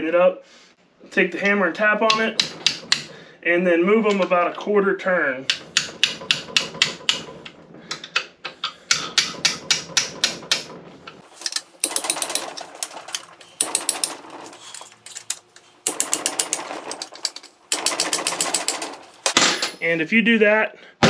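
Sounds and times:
socket ratchet clicking: 11.4s - 19.4s.

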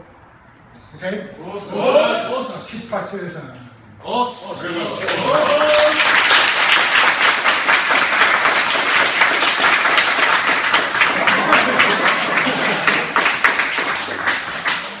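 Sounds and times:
group applauding: 4.6s - 15.0s.

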